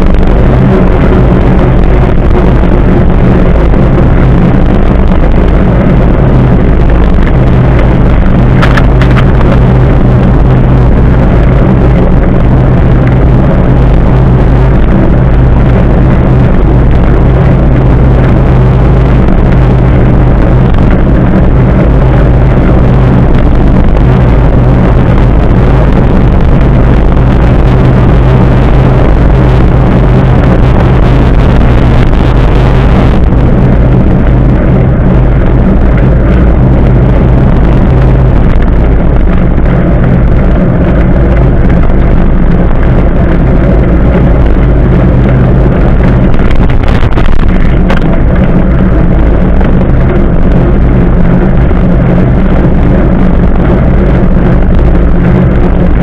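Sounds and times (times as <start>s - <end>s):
wind buffeting microphone: 0.0s - 56.0s
sharp click: 8.6s - 9.2s.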